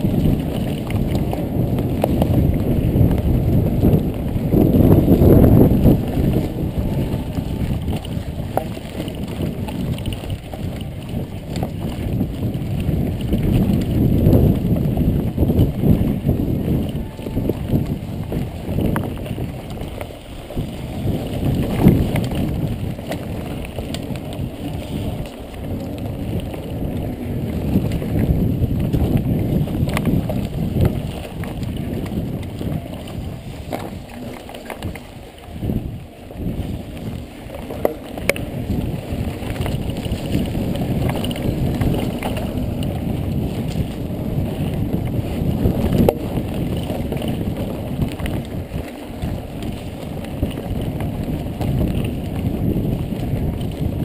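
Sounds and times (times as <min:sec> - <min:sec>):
bike clicks and rattles: 0:00.0 - 0:54.0
bike tyres rolling on dirt: 0:00.0 - 0:54.0
wind rumbling on microphone: 0:00.0 - 0:54.0.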